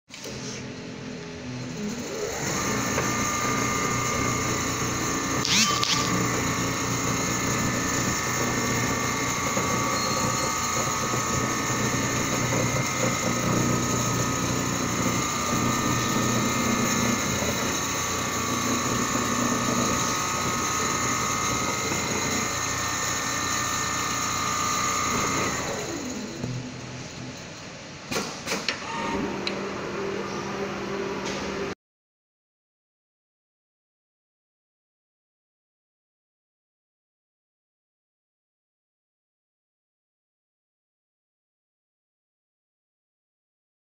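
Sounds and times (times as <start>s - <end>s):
sewing machine humming and whining: 0.1s - 31.8s.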